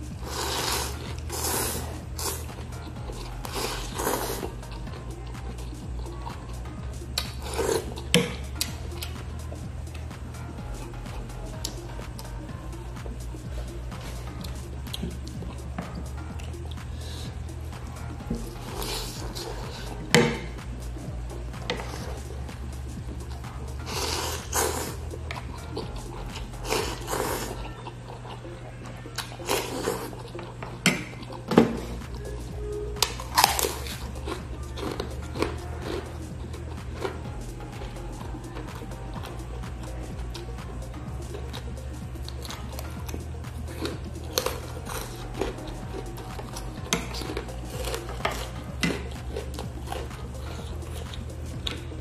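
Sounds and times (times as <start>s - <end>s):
noodles slurped: 0.0s - 6.4s, 7.2s - 9.2s, 23.8s - 28.4s, 29.1s - 30.5s
chewing: 0.0s - 52.0s.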